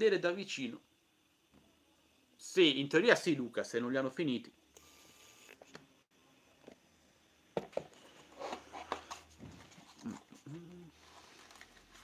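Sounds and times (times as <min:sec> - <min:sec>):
brief vocal sounds: 0:10.0 - 0:11.0.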